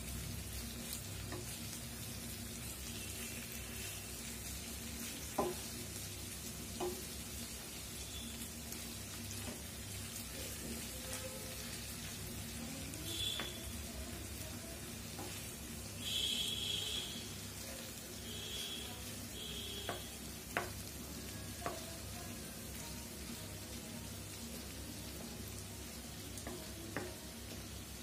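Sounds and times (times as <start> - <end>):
chicken sizzling in a pan: 0.0 - 28.0
wooden spoon knocking on pan: 5.2 - 5.8, 6.7 - 7.1, 13.2 - 13.6, 19.8 - 20.9, 21.6 - 21.9, 26.4 - 27.2.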